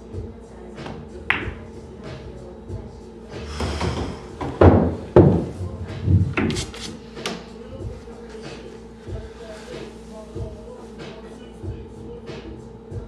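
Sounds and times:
heavy thuds and knocks: 3.5s - 6.7s
cue striking ball click: 4.4s - 6.7s.

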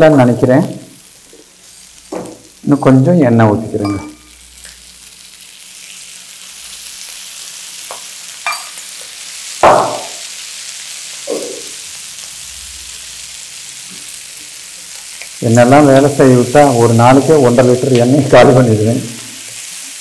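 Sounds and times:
oil sizzling in a pan: 0.0s - 20.0s
loud thump: 9.6s - 10.2s.

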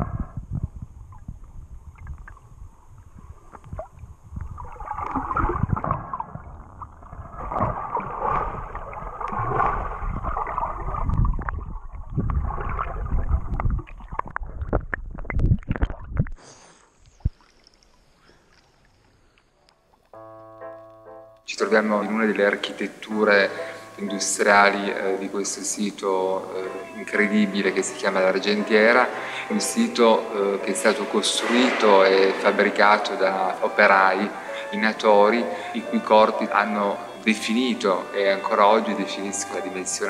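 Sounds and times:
underwater water sloshing: 1.0s - 20.0s.

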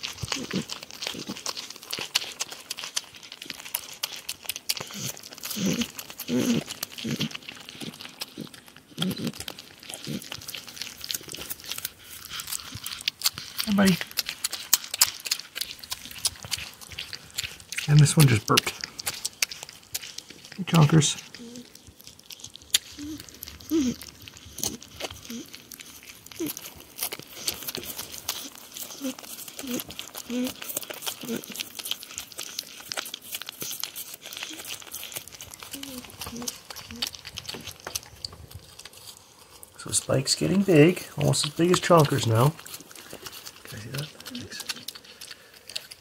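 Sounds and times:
crunching clicks of chewing: 0.0s - 46.0s
porcupine low mumbling: 4.9s - 10.4s, 35.7s - 37.7s.

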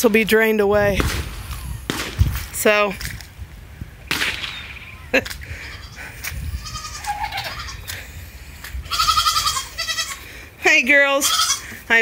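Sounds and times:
goats bleating: 5.6s - 8.0s, 8.8s - 10.3s, 11.2s - 11.8s.

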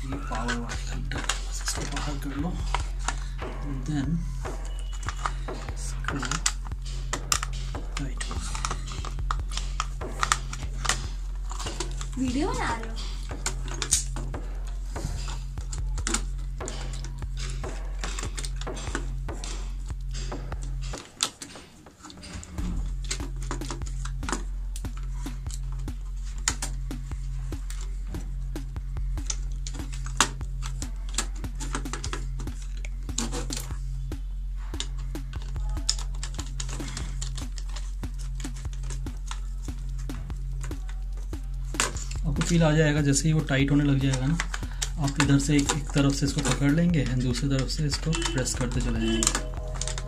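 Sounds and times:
clicks and taps on plastic: 23.0s - 34.2s, 34.8s - 50.0s.

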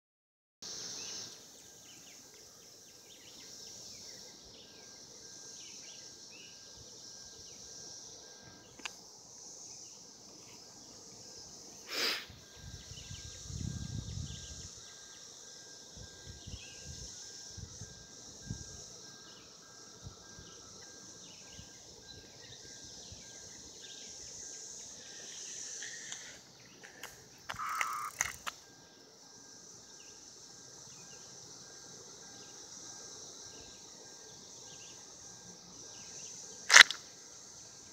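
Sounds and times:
cicada chirps: 0.6s - 37.9s
cicadas buzzing: 0.6s - 37.9s
sharp click: 36.7s - 37.0s.

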